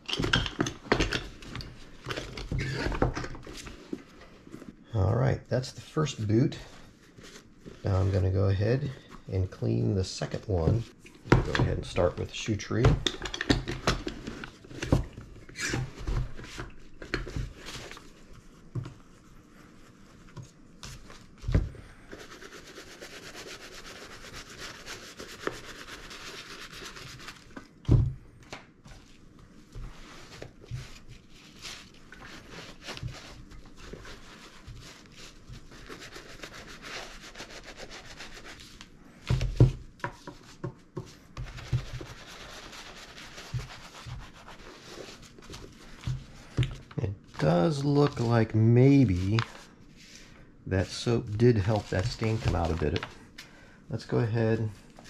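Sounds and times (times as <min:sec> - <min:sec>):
brush scrubbing leather boot: 0:22.1 - 0:27.5, 0:29.6 - 0:38.6, 0:41.5 - 0:46.0.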